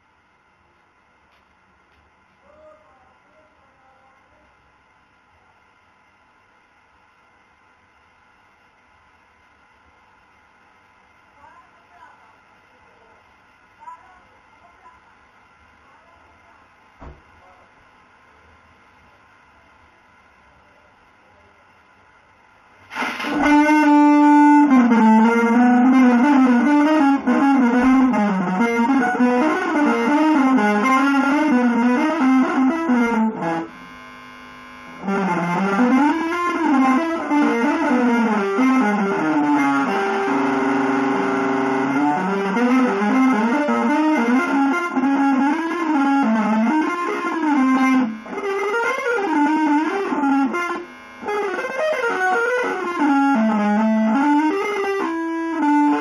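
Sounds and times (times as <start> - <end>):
electric guitar melody: 22.9 - 34.0, 34.8 - 56.0.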